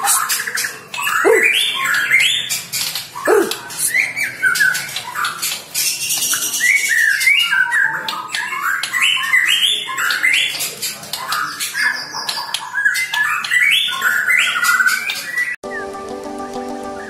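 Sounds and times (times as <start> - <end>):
bird singing whistled phrases: 0.0 - 2.6, 3.2 - 10.6, 11.3 - 16.0
sharp bird clicking notes: 2.2 - 3.8, 4.6 - 6.6.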